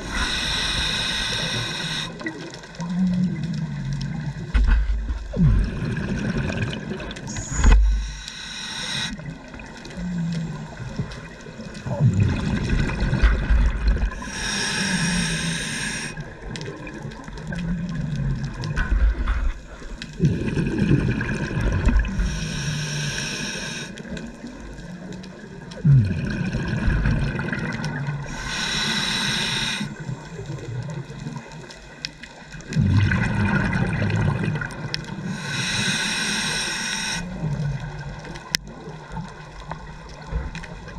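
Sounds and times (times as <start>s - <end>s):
diver breathing through regulator: 0.0s - 2.3s, 7.3s - 9.2s, 14.1s - 16.3s, 22.0s - 24.1s, 28.3s - 30.2s, 35.2s - 37.6s
underwater rumbling and burbling: 0.0s - 40.9s.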